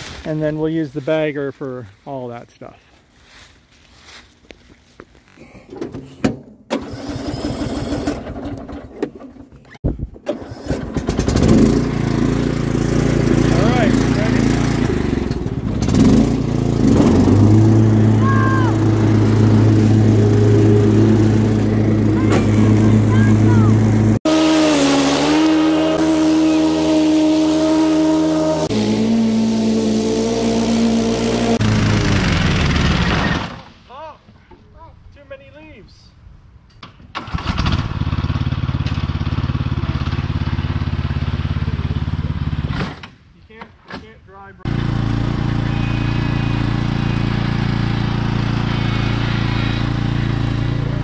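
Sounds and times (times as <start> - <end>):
riding lawn mower engine running: 5.6 - 33.7, 37.1 - 43.0, 44.6 - 51.0.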